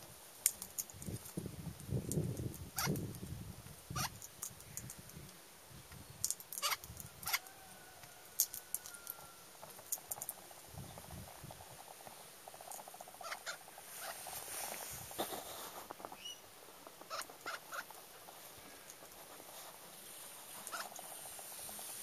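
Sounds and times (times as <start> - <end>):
parrot cracking seeds: 0.4 - 1.4, 6.2 - 10.5, 20.6 - 21.1
soft rustling: 8.8 - 22.0.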